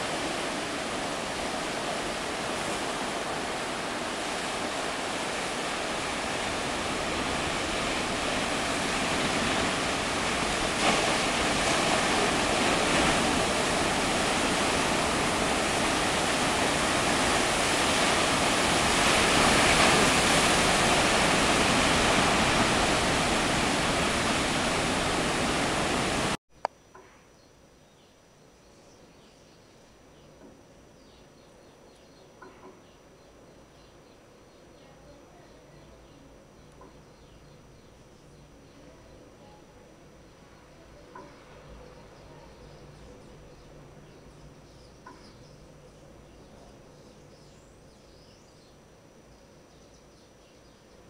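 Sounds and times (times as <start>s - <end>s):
ocean surf on rocks: 0.0s - 26.4s.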